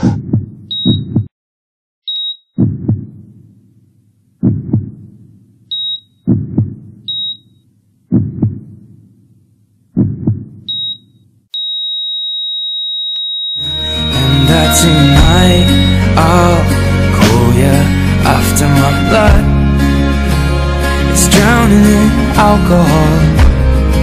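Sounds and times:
slow heartbeat: 0:00.0 - 0:01.3, 0:02.6 - 0:03.6, 0:04.4 - 0:05.4, 0:06.3 - 0:07.2, 0:08.1 - 0:09.0, 0:10.0 - 0:10.7
cardiac monitor beeps: 0:00.7 - 0:01.3, 0:02.1 - 0:02.7, 0:05.7 - 0:06.2, 0:07.1 - 0:07.6, 0:10.7 - 0:16.1
monitor flatline tone: 0:07.1 - 0:07.6, 0:10.7 - 0:16.4.

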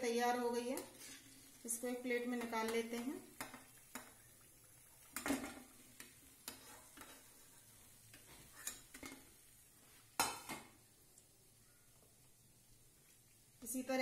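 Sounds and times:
oil sizzling: 0:00.0 - 0:14.0
metal spoon scraping a pan: 0:00.7 - 0:01.6, 0:05.2 - 0:09.4.

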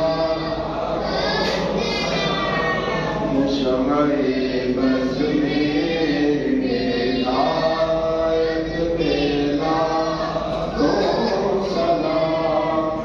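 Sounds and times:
men chanting in unison: 0:00.0 - 0:13.0.

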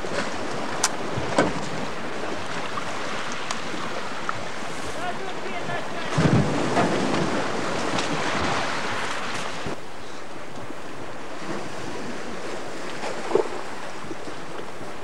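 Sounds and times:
wind buffeting microphone: 0:00.0 - 0:09.8
sea surf washing: 0:00.0 - 0:15.0.

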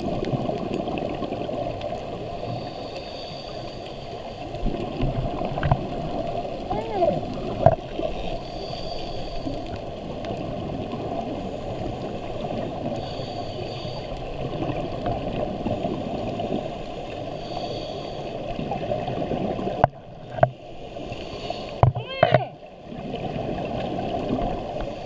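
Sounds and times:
underwater rush of bubbles: 0:00.0 - 0:02.9, 0:03.5 - 0:21.8, 0:22.6 - 0:25.0
regulator breathing hiss: 0:02.4 - 0:04.3, 0:08.3 - 0:09.8, 0:13.0 - 0:14.3, 0:17.3 - 0:18.5, 0:20.8 - 0:21.8.

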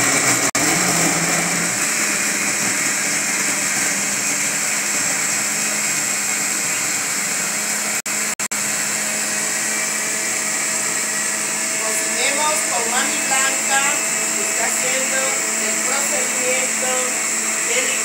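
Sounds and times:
blender running: 0:00.0 - 0:18.0.

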